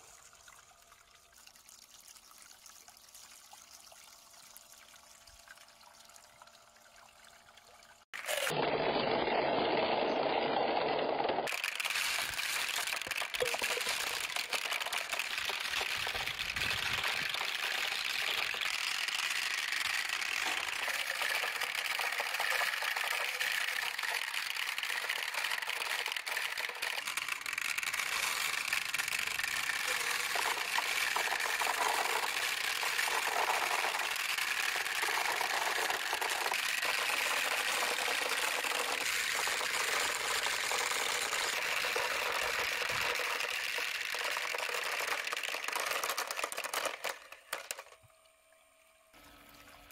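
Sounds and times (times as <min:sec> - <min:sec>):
water running and splashing: 0:00.0 - 0:08.6
small electric pump whirring: 0:07.9 - 0:48.2
marbles rolling: 0:09.4 - 0:48.0.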